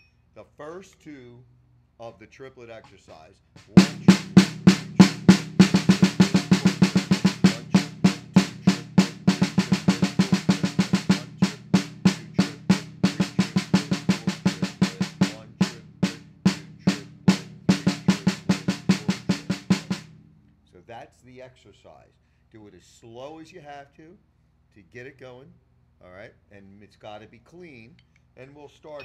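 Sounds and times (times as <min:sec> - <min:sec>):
snare drum played with sticks: 0:03.6 - 0:20.2.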